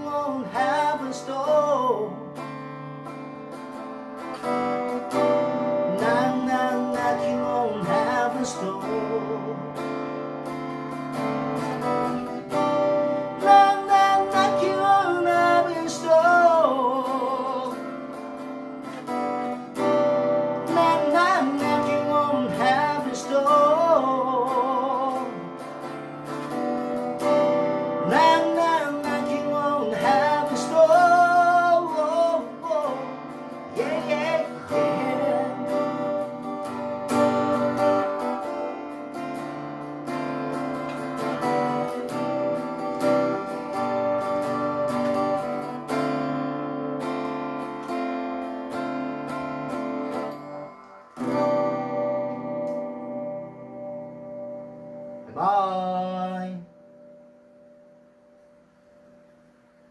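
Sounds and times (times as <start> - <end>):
man singing: 0.0 - 2.6, 5.6 - 10.2, 13.2 - 18.2, 19.4 - 26.1, 27.4 - 39.1, 55.2 - 56.8
guitar strumming: 0.0 - 59.9.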